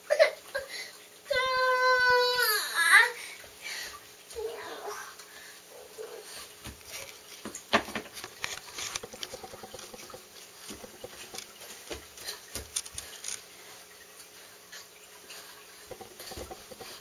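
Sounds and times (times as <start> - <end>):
bare feet pattering on vinyl floor: 9.0 - 13.2.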